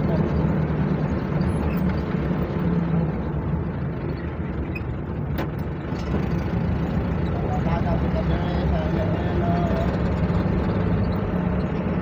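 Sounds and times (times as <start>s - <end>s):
engine and road drone in cabin: 0.0s - 12.0s.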